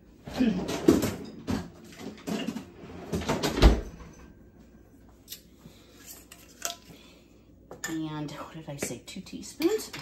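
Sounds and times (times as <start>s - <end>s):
knocks and rustles in freezer: 0.3s - 4.2s.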